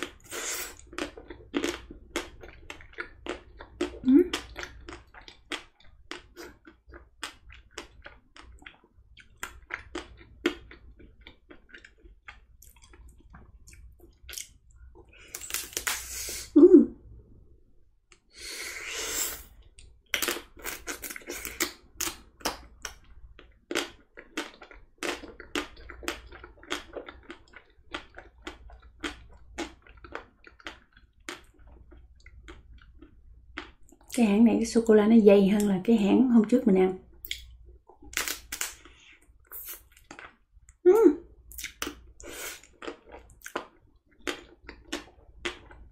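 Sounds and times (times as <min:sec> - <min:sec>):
chocolate shell cracking and chewing: 0:00.8 - 0:14.6, 0:15.2 - 0:16.0, 0:37.2 - 0:38.9.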